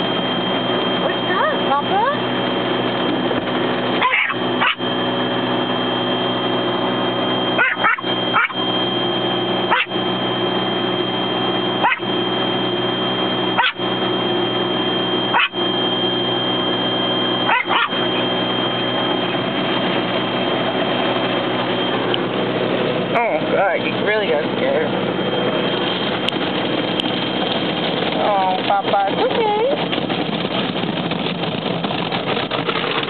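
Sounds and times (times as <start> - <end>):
thin high whine: 0.0 - 33.0
small dog barking: 4.0 - 4.8, 7.6 - 8.6, 9.7 - 9.9, 11.8 - 12.1, 13.6 - 13.8, 15.3 - 15.6, 17.5 - 18.0.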